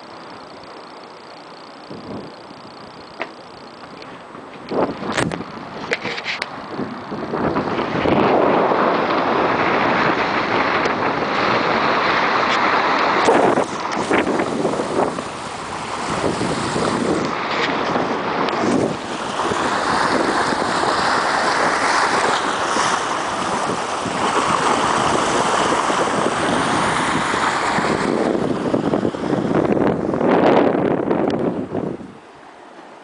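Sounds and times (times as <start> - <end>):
wind buffeting microphone: 1.8 - 32.3
water splashing against steel hull: 4.3 - 30.2.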